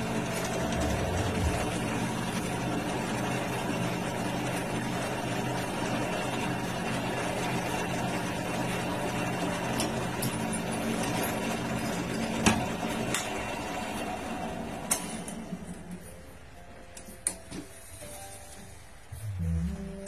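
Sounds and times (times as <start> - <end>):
drill press motor hum: 0.0 - 15.9.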